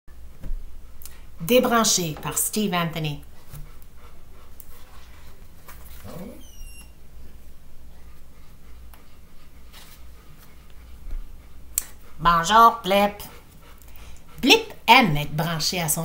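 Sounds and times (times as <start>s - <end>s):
brief high squeak: 6.0s - 7.0s.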